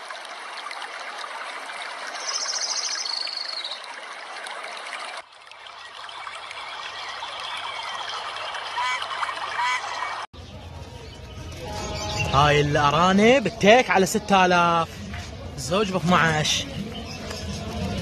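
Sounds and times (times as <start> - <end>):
running water: 0.0 - 10.3.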